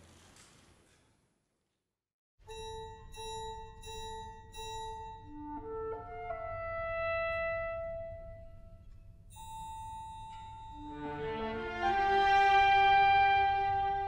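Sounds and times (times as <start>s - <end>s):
woodwind melody: 2.5s - 14.0s
orchestra playing film music: 5.4s - 8.5s, 10.8s - 14.0s.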